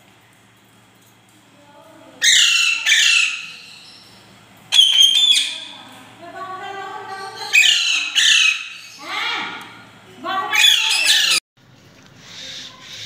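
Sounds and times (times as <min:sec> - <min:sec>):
parakeet squawking: 0:02.2 - 0:04.0, 0:04.7 - 0:05.8, 0:07.1 - 0:09.2, 0:10.5 - 0:11.4.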